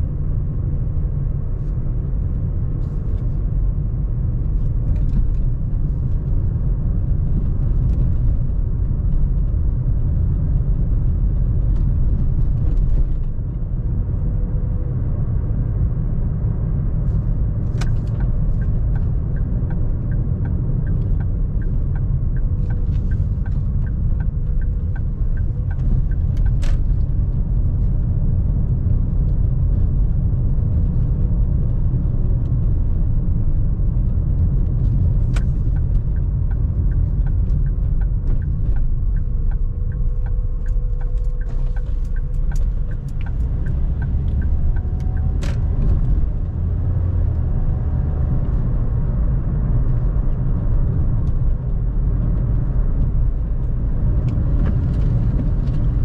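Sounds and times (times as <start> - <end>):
car tyre and engine rumble: 0.0 - 56.0
regular light ticking: 35.1 - 46.3.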